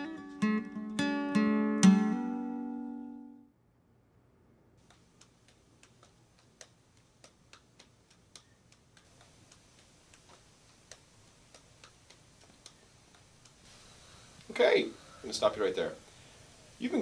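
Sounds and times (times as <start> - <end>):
juggling balls tapping hands: 4.9 - 13.6.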